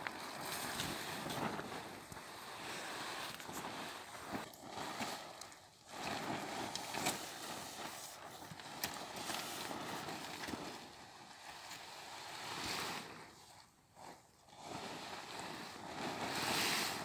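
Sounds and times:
tent fabric rustling and flapping: 0:00.0 - 0:17.0.

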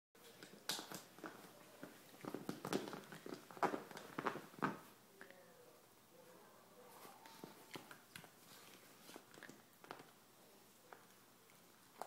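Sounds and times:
dog gnawing plastic bottle: 0:00.2 - 0:04.9, 0:07.5 - 0:10.2.

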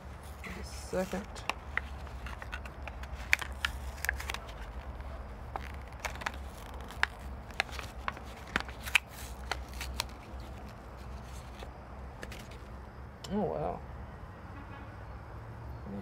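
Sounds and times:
plastic packaging crinkling: 0:00.2 - 0:12.7.

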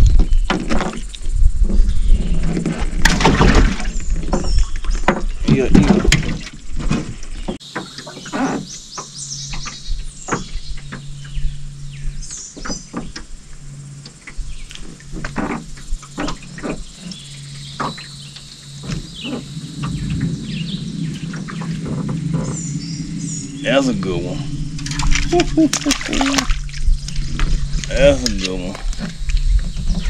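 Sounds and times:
birds chirping: 0:03.7 - 0:30.0
low hum: 0:08.9 - 0:30.0.

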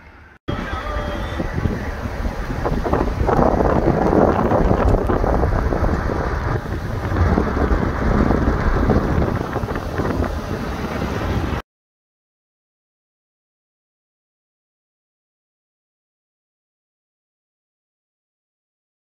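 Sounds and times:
gusting wind on microphone: 0:00.4 - 0:11.6.

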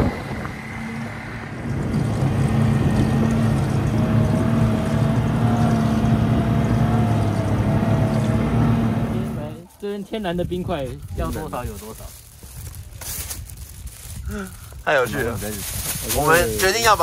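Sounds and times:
high wavering whine: 0:00.0 - 0:05.8
snowmobile engine droning: 0:00.0 - 0:09.6.

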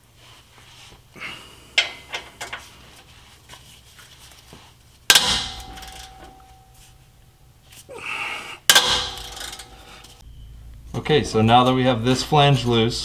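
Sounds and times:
loud ringing metal clang: 0:05.1 - 0:07.0, 0:08.7 - 0:11.0.

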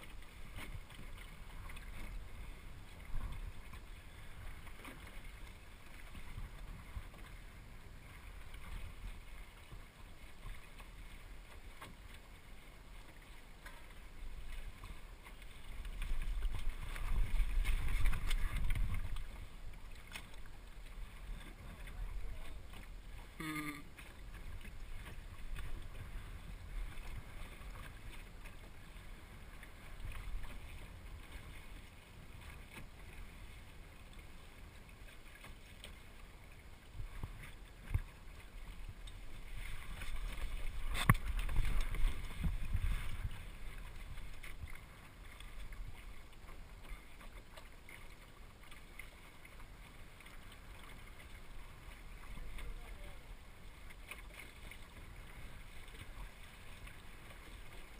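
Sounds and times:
water rushing along a boat hull: 0:00.0 - 0:57.9
wind on microphone: 0:16.0 - 0:19.6, 0:37.0 - 0:44.8.

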